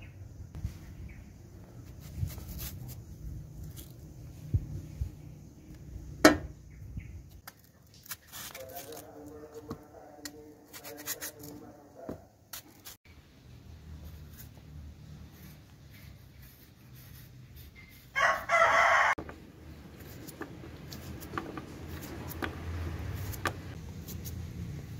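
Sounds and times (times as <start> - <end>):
knife scraping fruit skin: 1.9 - 4.0, 7.4 - 11.6, 12.5 - 13.0, 19.8 - 24.5.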